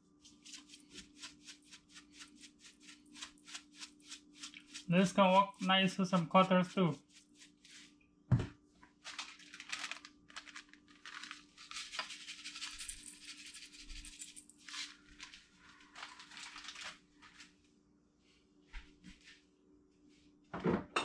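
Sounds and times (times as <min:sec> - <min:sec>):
seasoning shaken from container: 0:00.2 - 0:07.8, 0:09.1 - 0:15.0.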